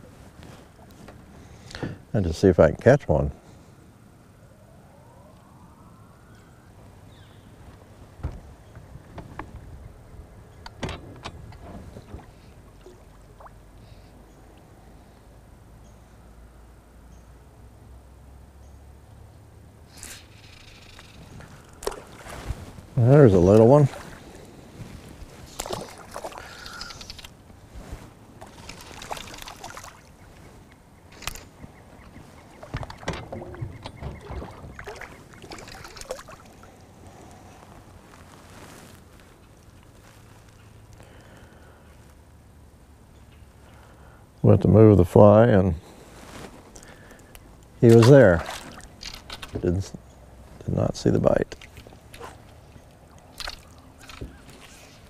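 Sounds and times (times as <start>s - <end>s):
water slapping: 21.8s - 22.5s, 25.4s - 27.2s, 28.4s - 30.2s, 32.6s - 36.8s, 47.9s - 49.1s
fish splashing at water surface: 25.5s - 27.3s, 28.4s - 30.1s, 34.3s - 36.8s.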